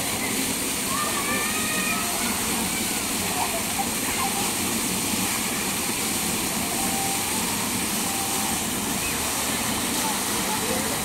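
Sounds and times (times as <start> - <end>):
fountain water splashing: 0.0 - 11.0.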